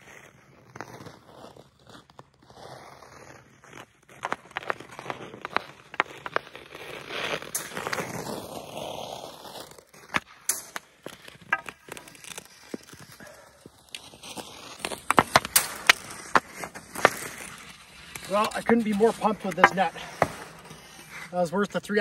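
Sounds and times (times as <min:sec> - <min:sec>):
skates scraping on ice: 0:00.0 - 0:22.0
hockey stick tapping ice: 0:04.2 - 0:08.5, 0:10.0 - 0:21.3.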